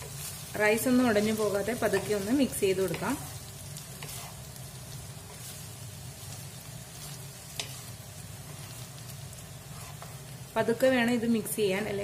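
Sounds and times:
fried rice sizzling in a pan: 0.0s - 12.0s.

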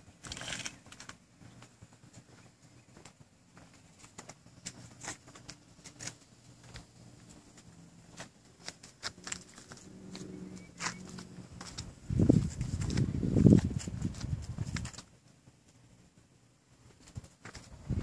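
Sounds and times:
footsteps on asphalt: 0.1s - 15.2s, 17.0s - 18.0s.

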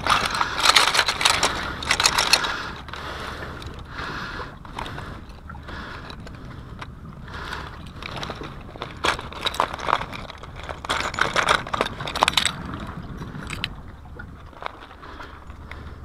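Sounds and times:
plastic crinkling: 0.0s - 3.0s, 8.0s - 12.8s
lure and pliers clacking on rock: 0.0s - 3.9s, 7.5s - 13.8s.

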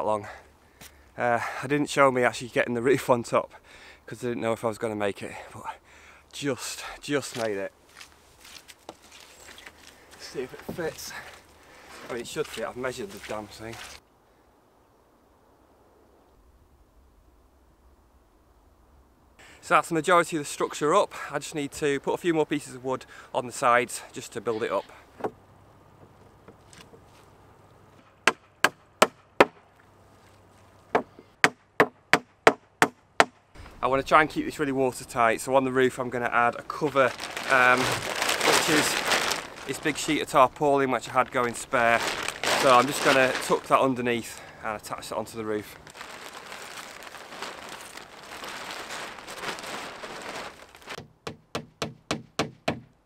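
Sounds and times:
plastic tarpaulin rustling: 7.2s - 14.0s, 33.6s - 51.0s
hammer nailing wooden planks: 28.3s - 29.6s, 30.9s - 33.4s, 51.0s - 52.9s.

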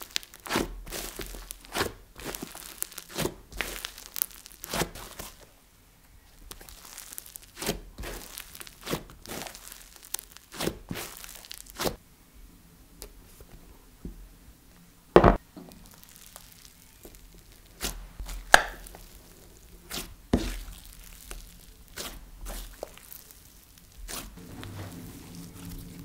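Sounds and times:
slime popping and clicking: 18.4s - 19.0s.

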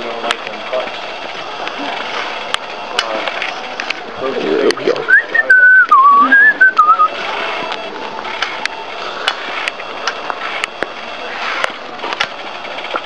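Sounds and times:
steady rolling noise: 0.0s - 13.0s
man whistling a tune: 5.1s - 7.2s.

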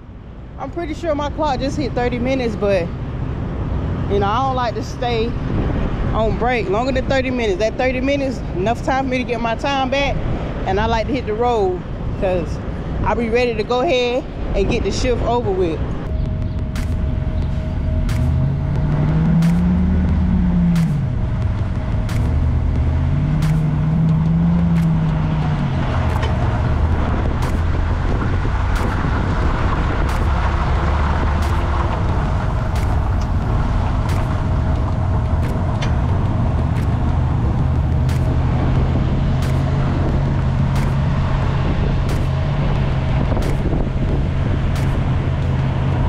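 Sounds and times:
truck diesel engine changing gears: 0.0s - 46.0s
light repeating tick: 16.0s - 46.0s.

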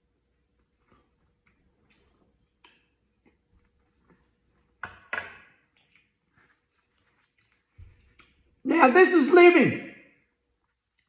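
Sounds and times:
man chewing food: 0.2s - 4.8s, 5.7s - 8.5s.

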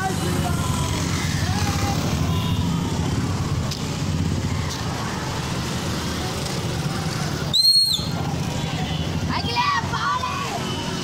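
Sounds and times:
motorcycles riding past: 0.0s - 11.0s
shrill whistle blast: 7.5s - 8.1s.

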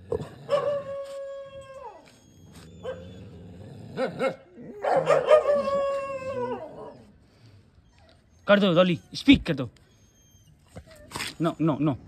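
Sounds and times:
dog whimpering: 0.5s - 3.6s, 4.5s - 7.2s, 7.8s - 12.0s
dog howling: 4.6s - 7.1s.

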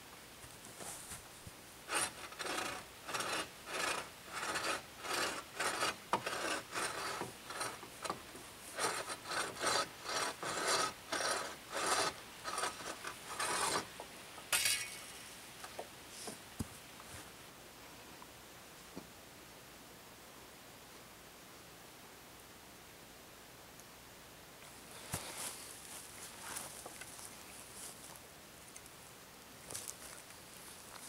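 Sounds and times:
bow saw cutting wood: 1.9s - 13.9s.

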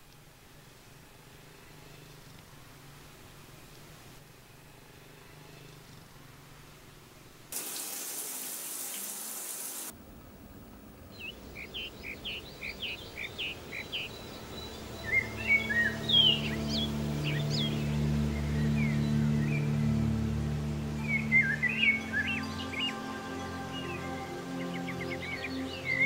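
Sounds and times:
rushing hiss: 7.6s - 9.9s
low steady drone: 10.0s - 26.0s
birds chirping: 11.0s - 26.0s.

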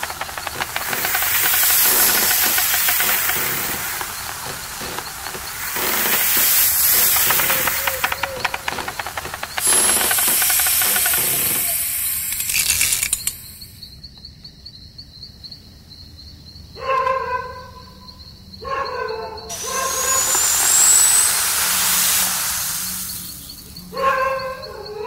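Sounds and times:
rattling hiss down a slide: 0.0s - 14.0s, 19.5s - 24.6s
high insect trill: 0.0s - 16.9s, 17.7s - 25.0s.

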